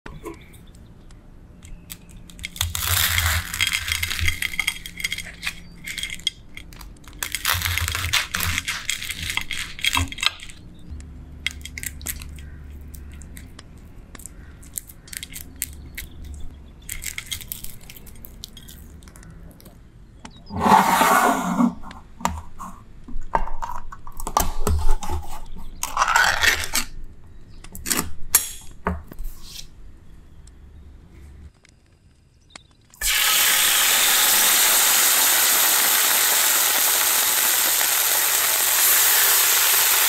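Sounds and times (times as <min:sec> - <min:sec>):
knife crunching through fried crust: 0:07.2 - 0:09.8.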